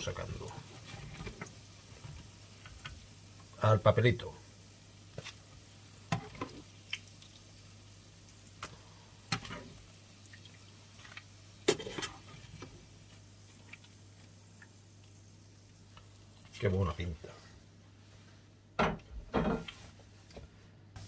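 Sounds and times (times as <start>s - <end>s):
oil sizzling: 0.0s - 17.4s
metal skimmer scraping frying pan: 11.6s - 12.6s.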